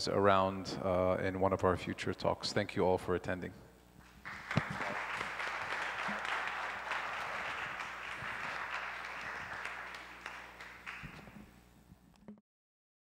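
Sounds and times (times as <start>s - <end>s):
audience clapping: 4.2s - 11.5s.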